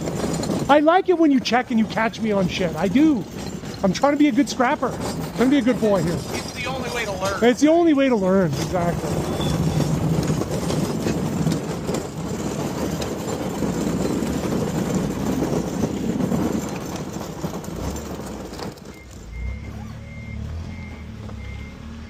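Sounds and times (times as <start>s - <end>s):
rattling and clatter: 0.0s - 21.7s
heavy vehicle engine running: 0.0s - 22.0s
reversing alarm beeping: 18.9s - 22.0s.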